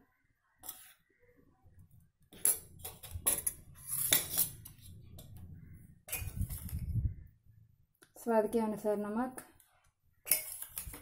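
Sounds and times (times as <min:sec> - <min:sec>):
spoon clinking on steel bowl: 0:10.3 - 0:11.0.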